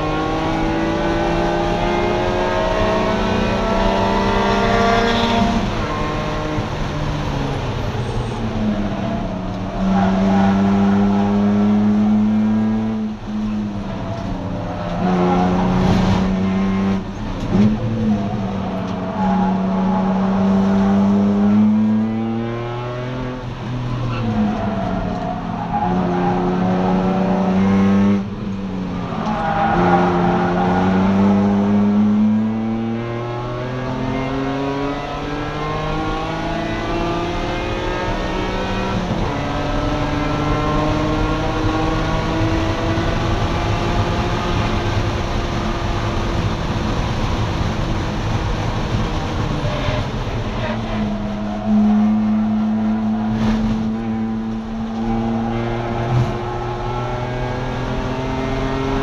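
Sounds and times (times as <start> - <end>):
car engine accelerating: 0.0 - 59.0.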